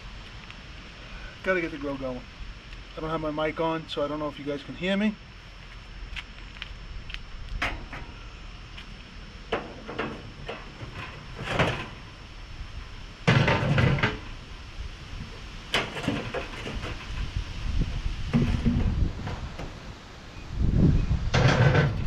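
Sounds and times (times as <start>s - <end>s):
metal clattering scrape: 9.6s - 12.1s, 15.7s - 17.3s, 21.3s - 22.0s.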